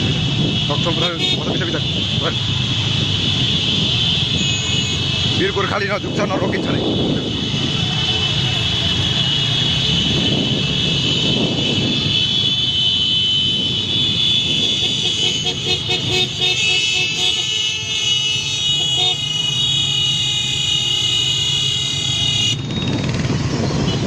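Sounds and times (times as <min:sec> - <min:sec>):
wind: 0:00.0 - 0:24.0
high-pitched horn tone: 0:03.3 - 0:05.2, 0:09.4 - 0:22.8
short repeated honks: 0:04.4 - 0:05.1.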